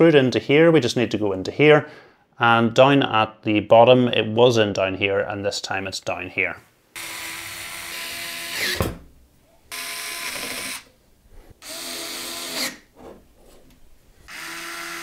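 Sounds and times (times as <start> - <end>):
electric screwdriver whining: 9.7 - 10.9, 11.6 - 12.8, 14.3 - 15.0.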